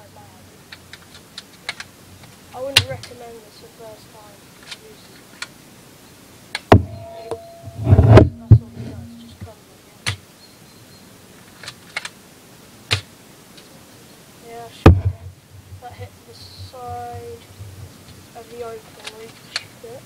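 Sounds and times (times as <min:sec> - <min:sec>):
air rifle snaps and clicks: 0:11.5 - 0:12.2.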